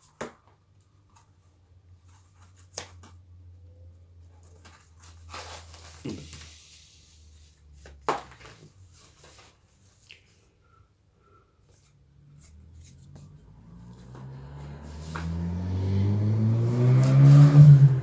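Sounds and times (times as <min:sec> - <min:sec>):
rustling of paper and sleeves: 0:04.2 - 0:10.5, 0:11.6 - 0:13.5.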